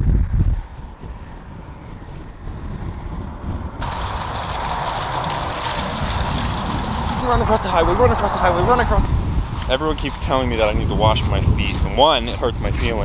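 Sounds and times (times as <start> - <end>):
car road noise: 0.0 - 11.0
wind rumble: 0.0 - 13.0
rushing water: 3.8 - 9.0.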